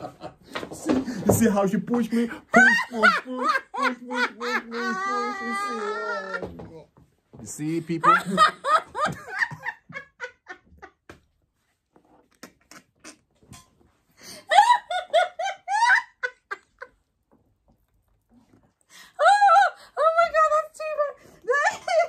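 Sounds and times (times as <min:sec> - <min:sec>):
person laughing: 0:02.5 - 0:06.6, 0:14.5 - 0:16.9.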